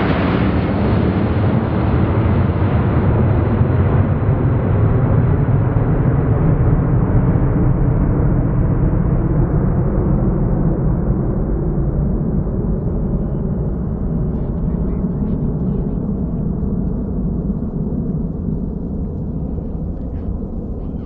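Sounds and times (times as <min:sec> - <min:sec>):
jet aircraft engines climbing: 0:00.0 - 0:21.0.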